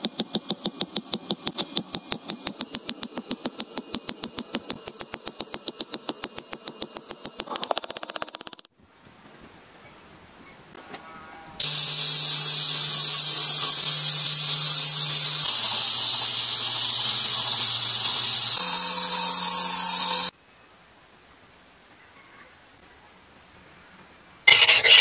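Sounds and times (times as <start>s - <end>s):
belt grinder hissing on steel: 11.6s - 20.3s
motor hum: 11.6s - 20.3s.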